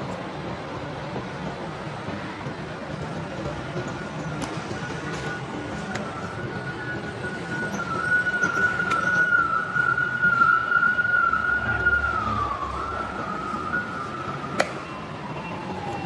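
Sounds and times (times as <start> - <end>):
high whistle-like tone: 4.7 - 16.0.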